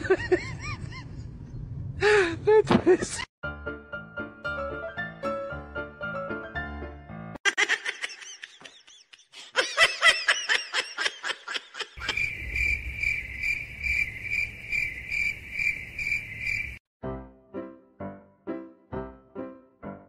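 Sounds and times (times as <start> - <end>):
cricket-like chirping: 12.0 - 16.8.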